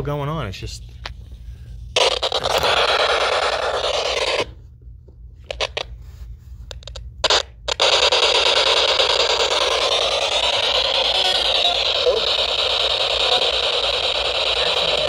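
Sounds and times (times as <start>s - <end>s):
radio static hiss: 11.0s - 15.0s.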